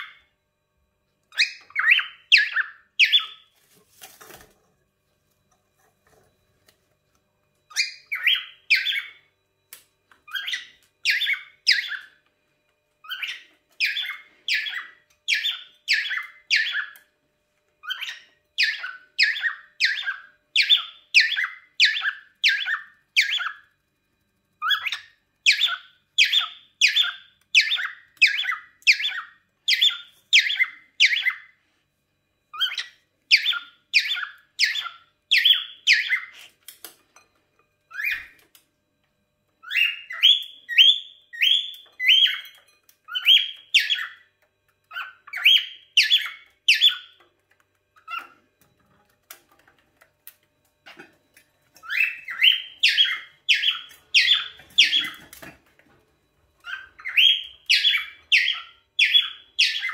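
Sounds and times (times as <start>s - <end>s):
cockatiel calls: 1.3s - 3.4s, 10.3s - 12.2s, 13.0s - 17.0s, 17.8s - 23.6s, 24.6s - 31.5s, 32.5s - 36.5s, 43.1s - 44.2s, 44.9s - 47.2s, 51.8s - 55.5s, 56.6s - 59.9s.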